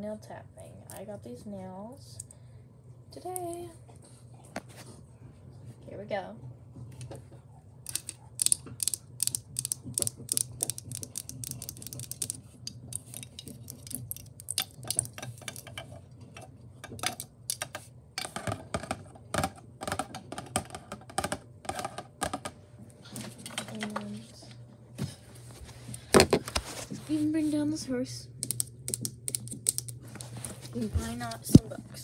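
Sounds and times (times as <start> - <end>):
fingernails tapping on hard objects: 7.9 - 15.9, 16.8 - 22.6.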